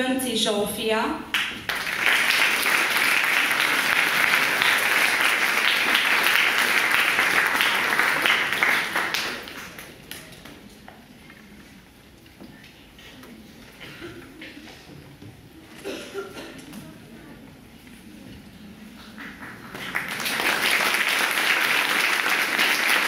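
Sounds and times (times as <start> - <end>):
audience applauding: 1.3 - 10.1, 19.0 - 23.0.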